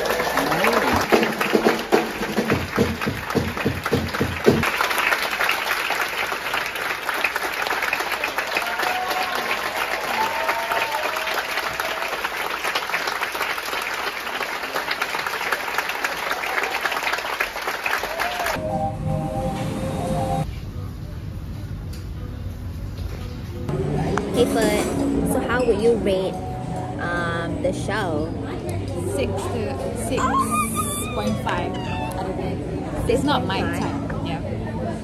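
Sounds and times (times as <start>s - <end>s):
audience applauding: 0.0s - 18.6s
faint voices cheering: 8.4s - 12.2s, 18.0s - 18.6s.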